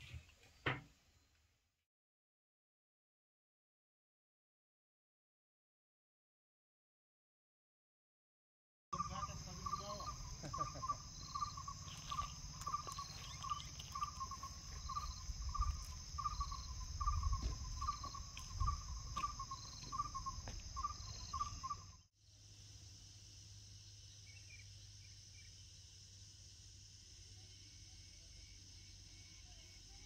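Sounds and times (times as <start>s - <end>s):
faint background hum: 9.0s - 30.0s
insects droning: 9.0s - 30.0s
short repeating insect call: 9.0s - 30.0s.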